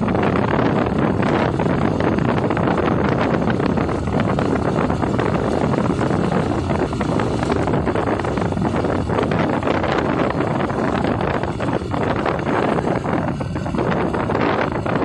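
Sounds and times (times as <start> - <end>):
motorcycle running: 0.0 - 15.0
wind rushing over microphone: 0.0 - 15.0.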